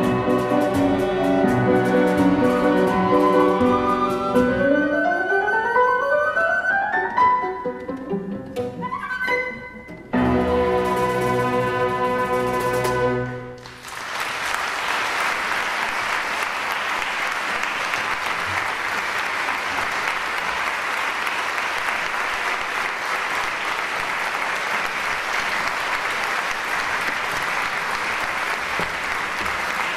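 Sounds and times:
orchestra chord: 0:10.1 - 0:13.6
audience applause: 0:13.6 - 0:29.9.

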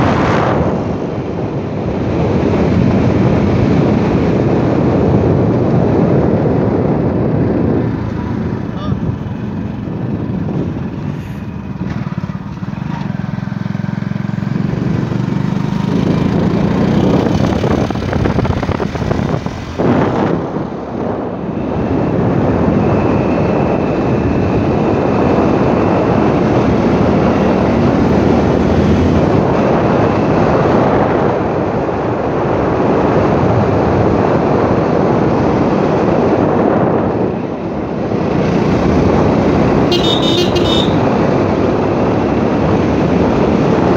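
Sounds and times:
wind rushing over microphone: 0:00.0 - 0:43.9
motorbike engine running: 0:38.2 - 0:41.6.

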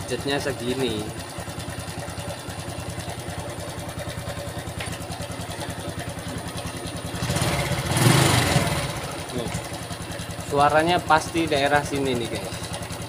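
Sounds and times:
engine rattling: 0:00.0 - 0:13.0
motorcycle engine idling: 0:00.0 - 0:13.0.

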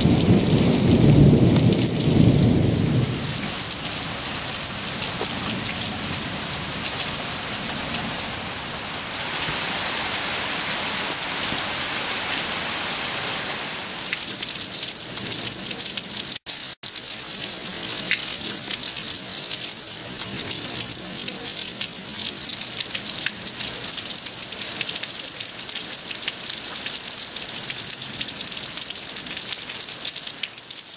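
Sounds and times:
thunder rumbling: 0:00.0 - 0:08.8
heavy rain pouring: 0:00.0 - 0:30.9
rain drips and splashes: 0:00.0 - 0:30.9.

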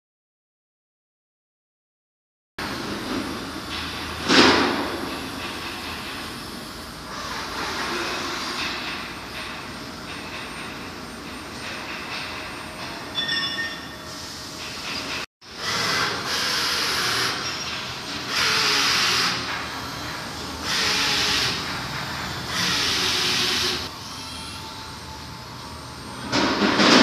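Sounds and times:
pneumatic hiss bursts: 0:14.0 - 0:24.6
boring machine humming: 0:15.4 - 0:26.6.

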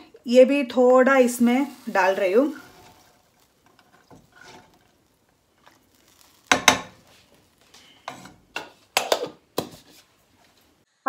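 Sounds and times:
wooden spoon scraping saucepan: 0:01.2 - 0:10.8
cookware clattering: 0:06.5 - 0:07.1, 0:08.0 - 0:09.8.

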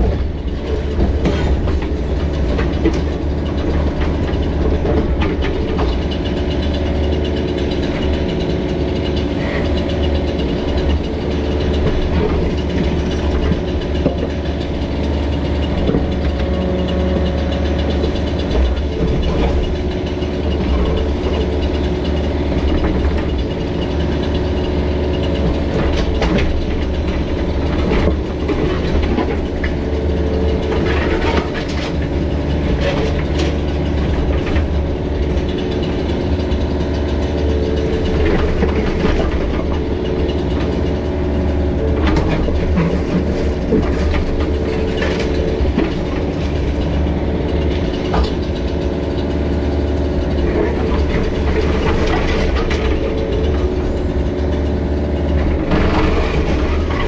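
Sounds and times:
diesel engine running: 0:00.0 - 0:57.0.

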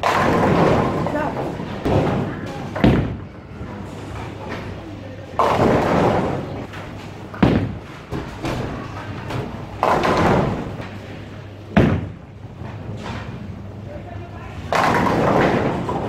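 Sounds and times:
bowling pins clattering: 0:00.0 - 0:13.8, 0:14.6 - 0:16.0
bowling ball thudding on lane: 0:07.3 - 0:08.7, 0:09.3 - 0:11.0, 0:11.7 - 0:12.2, 0:14.7 - 0:16.0.

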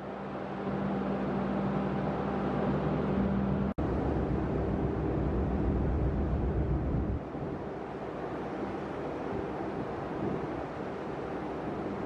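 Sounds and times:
low machinery hum: 0:00.0 - 0:12.0
water: 0:00.0 - 0:12.0
wind rumble: 0:02.9 - 0:12.0.

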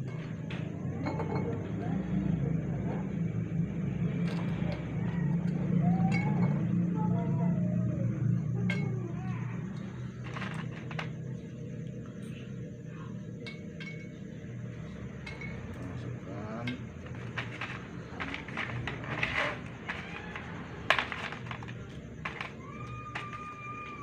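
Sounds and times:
steady low hum: 0:00.0 - 0:24.0
glass bottles clinking: 0:16.6 - 0:24.0.

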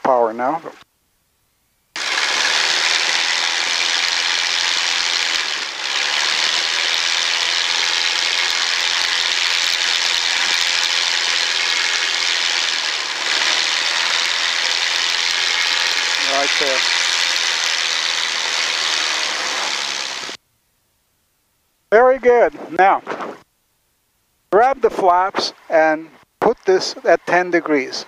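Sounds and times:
airplane piston engine at full power: 0:02.0 - 0:20.4.

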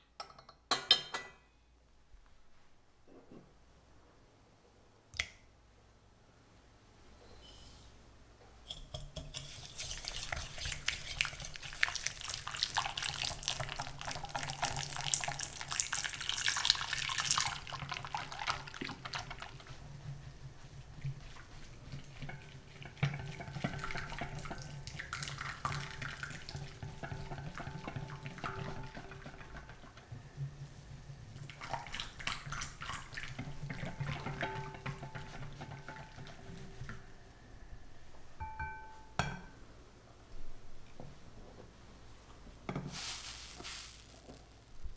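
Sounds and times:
whisk beating in glass bowl: 0:08.7 - 0:37.0.

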